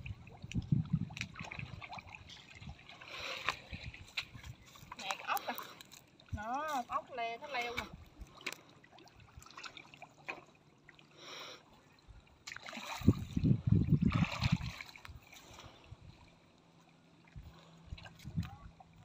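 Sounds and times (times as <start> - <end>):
muddy water sloshing and splashing: 0.0 - 19.0.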